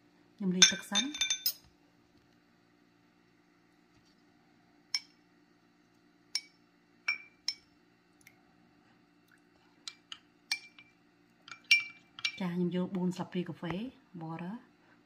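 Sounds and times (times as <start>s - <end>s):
metal spoon clinking against glass: 0.6s - 1.6s, 11.5s - 12.4s.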